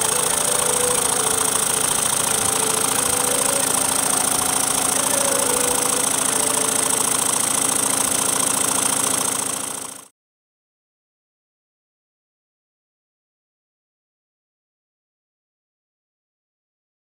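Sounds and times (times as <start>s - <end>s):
model steam engine exhaust beats: 0.0s - 10.0s.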